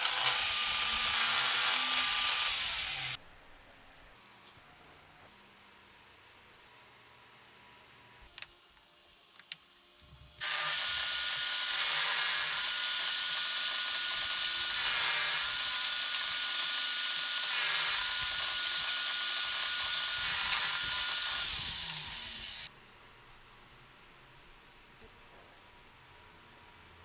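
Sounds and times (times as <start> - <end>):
table saw cutting plywood: 0.0 - 3.2, 10.4 - 22.7.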